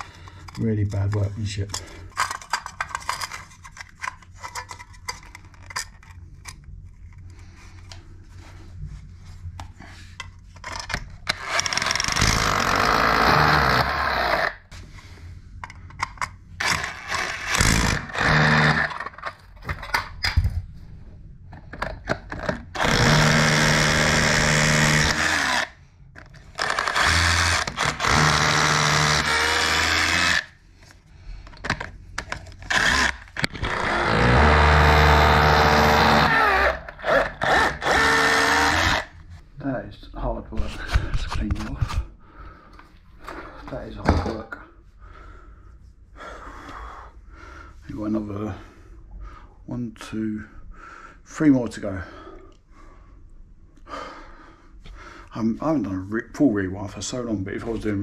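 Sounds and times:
hammer drill boring into brick: 11.3s - 14.6s, 16.6s - 19.3s, 22.7s - 25.8s, 26.5s - 30.5s, 32.6s - 39.1s.

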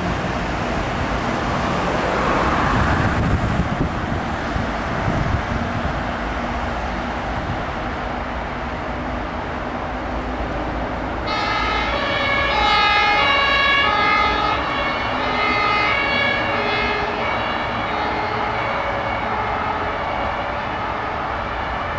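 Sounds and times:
truck engine and road rumble: 0.0s - 21.9s
two-tone emergency siren: 11.2s - 21.9s.

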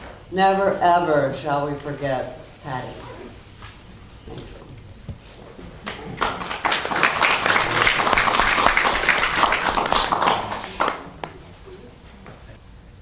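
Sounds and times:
crowd applauding: 5.8s - 11.4s.

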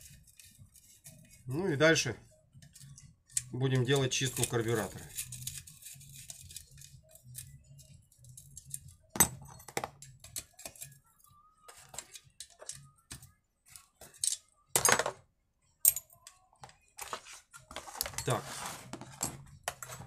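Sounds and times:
metal hand tools clinking: 3.3s - 10.9s.

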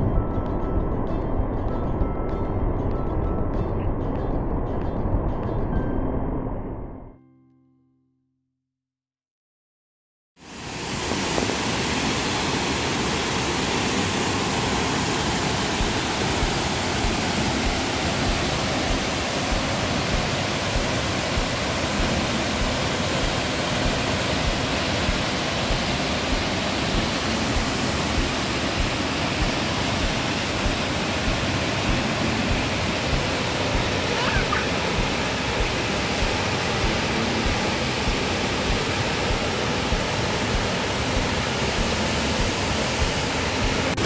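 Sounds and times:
waterfall rushing: 10.4s - 44.0s.

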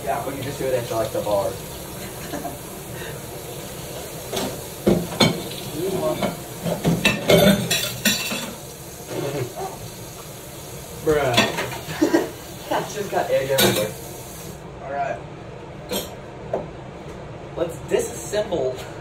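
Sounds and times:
frying sizzle: 0.0s - 14.6s
utensils clinking against pans: 4.3s - 9.5s, 11.2s - 12.2s, 13.4s - 14.0s.

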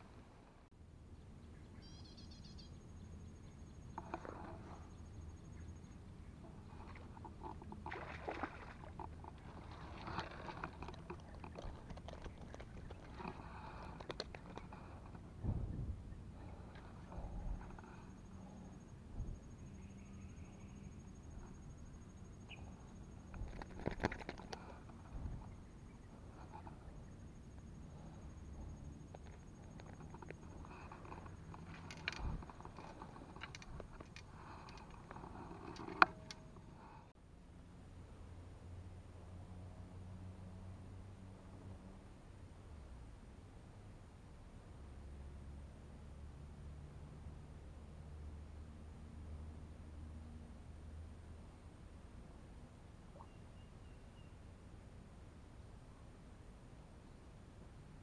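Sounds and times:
steady low rumble: 4.6s - 23.8s
fishing rod clicks and rustles: 6.5s - 15.3s, 23.3s - 25.5s, 29.1s - 36.8s
small water splashes: 6.8s - 13.4s.

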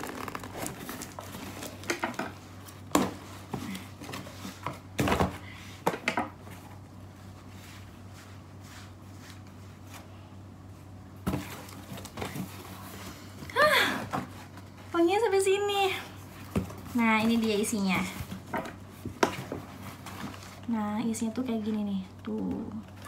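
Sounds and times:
plastic rustling and crinkling: 0.0s - 5.3s, 11.2s - 13.4s, 16.1s - 23.0s.

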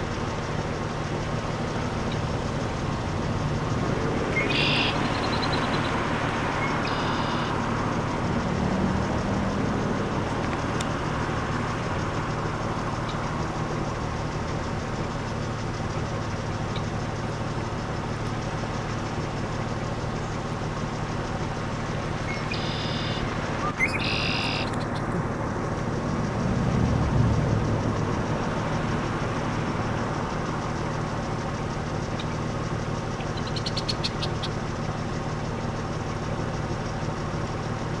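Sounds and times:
blackbird singing: 4.2s - 6.0s, 6.6s - 7.6s, 22.2s - 25.1s, 33.1s - 34.6s.

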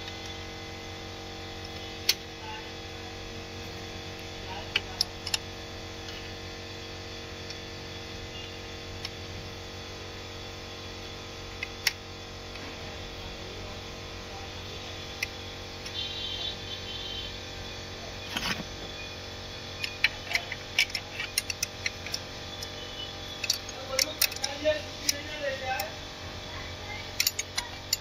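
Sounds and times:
steady hum: 0.0s - 28.0s
hand tools clicking and tapping: 19.8s - 22.7s, 23.3s - 25.9s, 27.1s - 28.0s.

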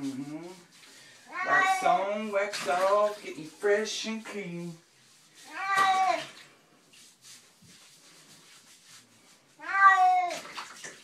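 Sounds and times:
cat meowing: 1.3s - 2.0s, 5.5s - 6.3s, 9.6s - 10.5s.

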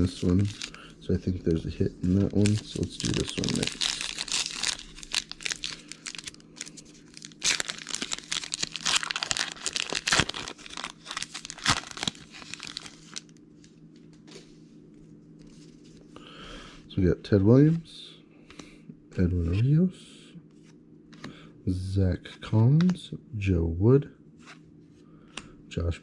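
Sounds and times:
card pack wrapper tearing and crinkling: 0.0s - 0.8s, 2.1s - 13.4s.

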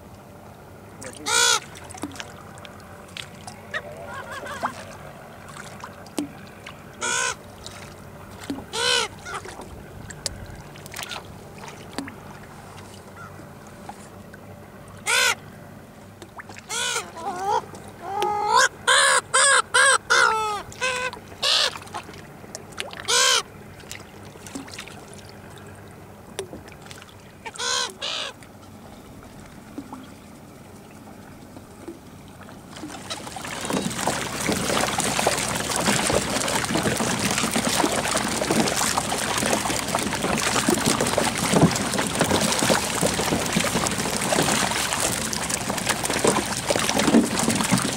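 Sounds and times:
water splashing: 0.9s - 14.1s, 16.1s - 47.9s
gulls calling: 1.0s - 11.5s, 13.1s - 13.5s, 14.9s - 15.6s, 16.5s - 22.2s, 23.0s - 23.8s, 27.1s - 31.6s.

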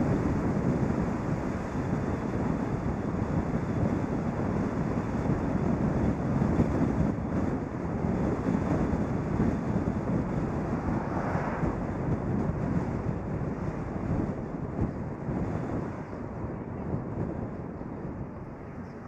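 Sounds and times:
tyre and road noise: 0.0s - 19.0s
wind rushing on microphone: 0.0s - 19.0s.

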